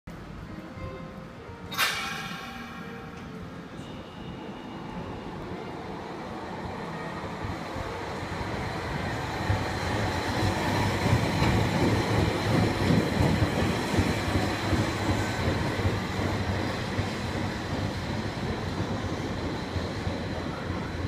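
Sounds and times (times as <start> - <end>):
tram motor and wheel rumble: 0.1 - 21.0.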